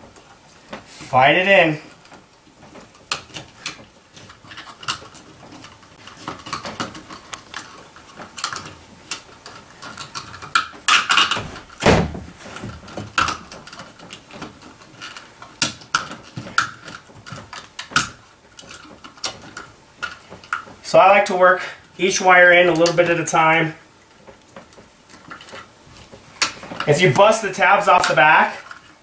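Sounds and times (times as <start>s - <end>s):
handling noise: 0.0s - 20.9s.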